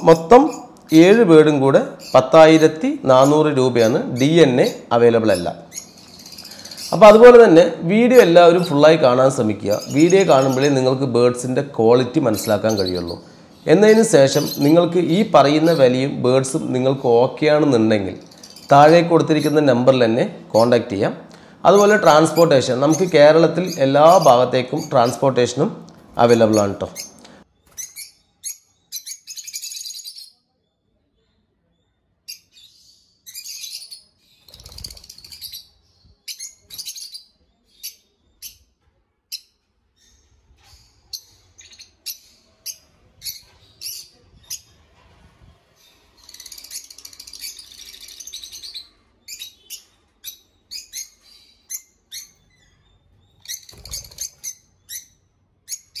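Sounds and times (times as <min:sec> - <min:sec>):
birds chirping: 0:00.0 - 0:56.0
wings fluttering: 0:34.4 - 0:35.6, 0:53.5 - 0:54.6.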